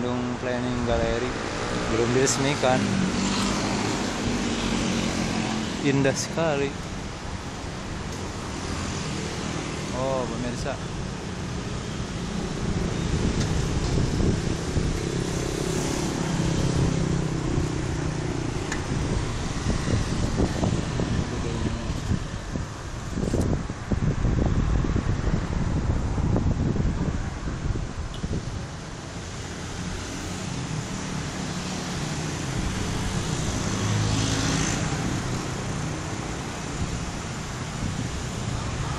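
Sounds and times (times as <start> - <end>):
street traffic: 0.0 - 38.9
wind rumbling on microphone: 0.4 - 38.9
motor vehicle passing: 12.3 - 25.4.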